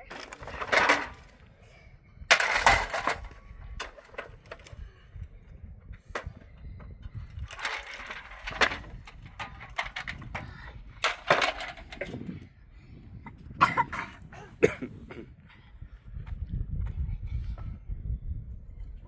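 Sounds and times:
metal toy trucks clanking: 0:00.0 - 0:01.4, 0:02.3 - 0:04.8, 0:07.2 - 0:12.3.

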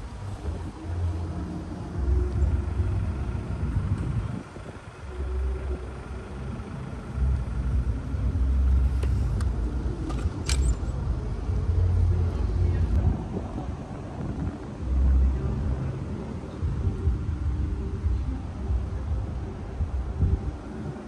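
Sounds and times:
wind buffeting microphone: 0:00.0 - 0:06.2, 0:07.3 - 0:21.0.

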